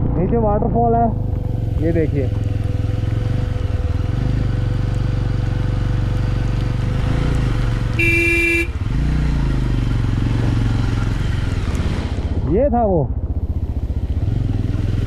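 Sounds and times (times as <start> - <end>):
motorcycle engine running: 0.0 - 15.0
horn blast: 8.0 - 8.8.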